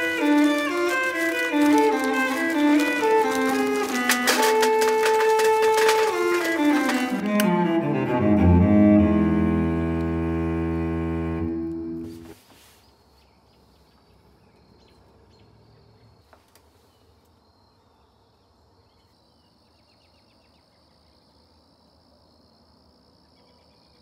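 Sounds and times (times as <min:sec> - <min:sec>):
bowed string music: 0:00.0 - 0:12.4.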